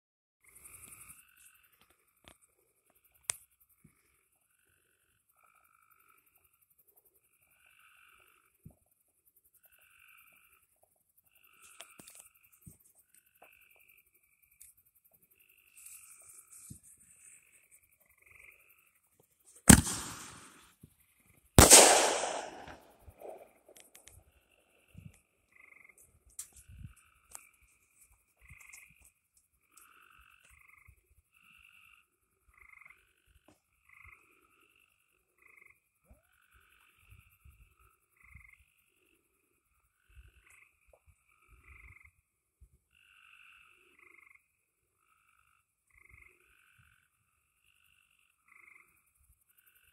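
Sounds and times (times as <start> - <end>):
frogs croaking: 0.4 - 49.9
firework shell burst: 19.7 - 20.6, 21.6 - 23.4.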